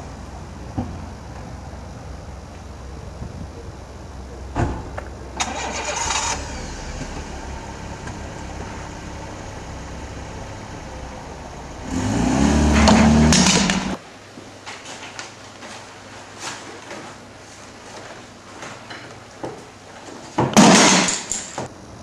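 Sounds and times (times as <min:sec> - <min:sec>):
car engine starting and idling: 0:05.2 - 0:14.0
car engine revving: 0:05.5 - 0:14.0.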